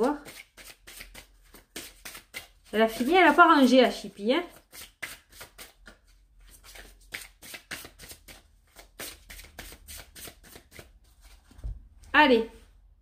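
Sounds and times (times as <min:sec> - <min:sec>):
cards being shuffled: 0:00.0 - 0:11.6.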